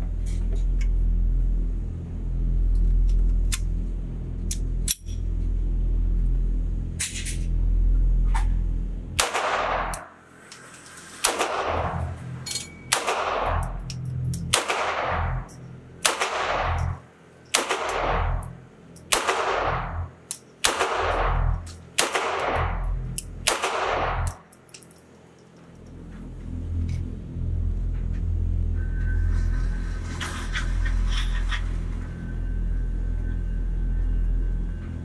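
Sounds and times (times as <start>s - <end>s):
low rumble: 0.0s - 10.2s, 11.3s - 24.5s, 25.7s - 35.0s
pistol shots echoing: 12.9s - 13.6s, 14.5s - 15.3s, 16.0s - 16.9s, 17.5s - 18.4s, 19.1s - 20.0s, 20.6s - 22.8s, 23.4s - 24.3s.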